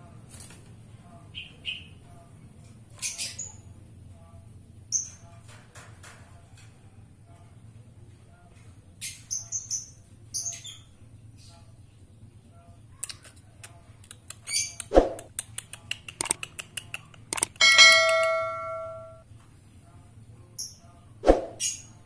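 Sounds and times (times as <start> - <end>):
scattered clicks: 13.0 - 18.4
bell-like ding: 17.6 - 19.2.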